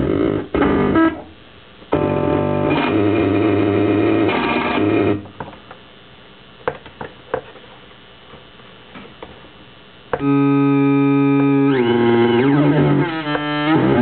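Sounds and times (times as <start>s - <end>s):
buzzy electronic glitch drone: 0.0s - 5.3s, 10.1s - 14.0s.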